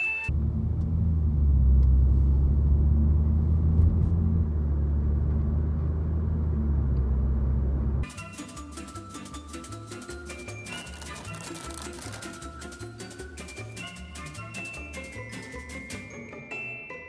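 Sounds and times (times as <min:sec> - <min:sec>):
car interior rumble: 0:00.3 - 0:08.0
music: 0:08.0 - 0:17.0.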